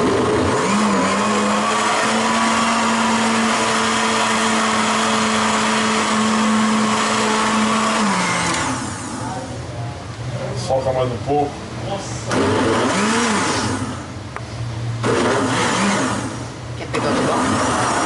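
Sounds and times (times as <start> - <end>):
blender running: 0.0 - 9.2, 12.3 - 14.1, 15.0 - 18.0.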